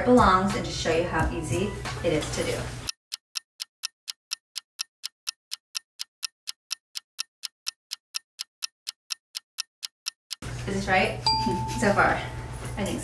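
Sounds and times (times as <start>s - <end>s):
clock ticking: 3.1s - 12.2s.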